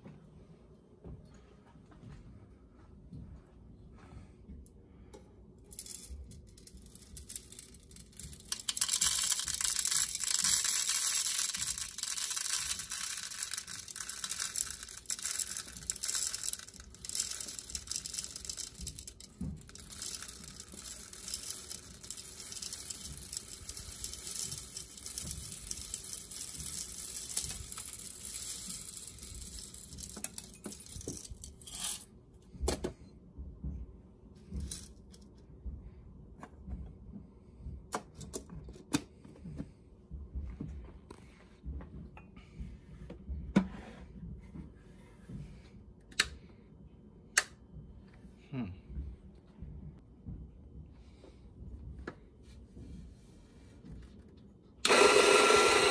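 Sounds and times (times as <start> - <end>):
coffee beans pouring into hopper: 5.7 - 32.0, 54.8 - 55.9.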